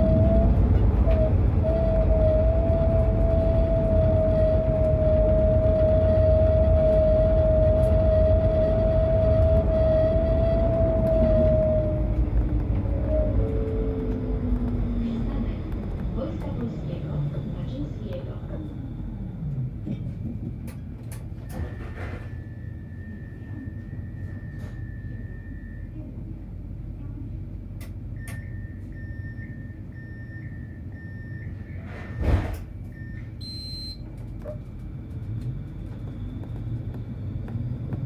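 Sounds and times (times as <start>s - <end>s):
tram interior rumble: 0.0s - 38.0s
short beeps: 32.9s - 34.0s.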